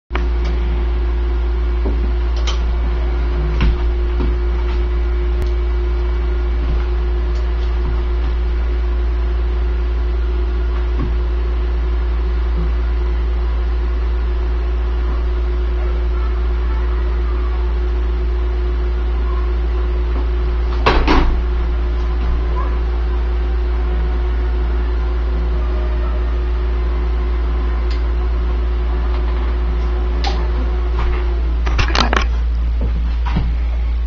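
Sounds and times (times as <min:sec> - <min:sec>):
low electrical hum: 0:00.1 - 0:34.0.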